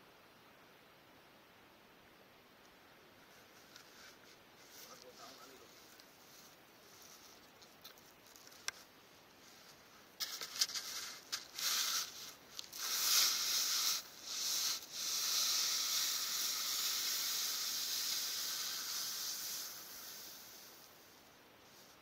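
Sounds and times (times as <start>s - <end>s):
board scraping over gravel: 10.2s - 20.8s.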